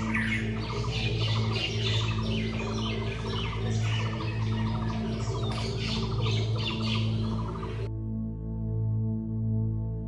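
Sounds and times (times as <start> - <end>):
birds chirping and trilling: 0.0 - 7.9
low drone: 0.0 - 10.0.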